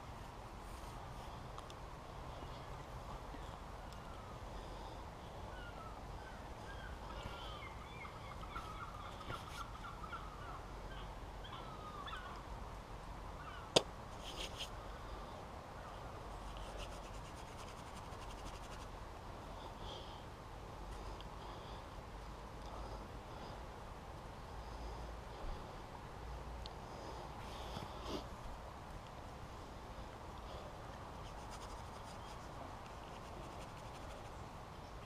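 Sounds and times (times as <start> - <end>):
birds chirping: 2.3 - 12.5.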